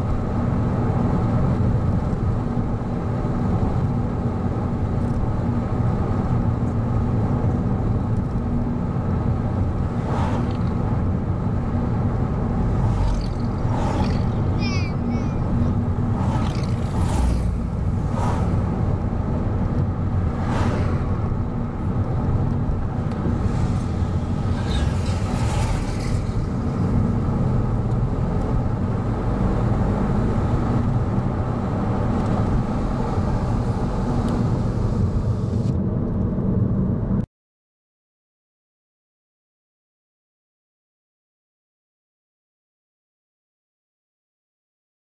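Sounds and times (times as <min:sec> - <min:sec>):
road and engine rumble: 0:00.0 - 0:37.3
cars whooshing past: 0:09.6 - 0:35.6.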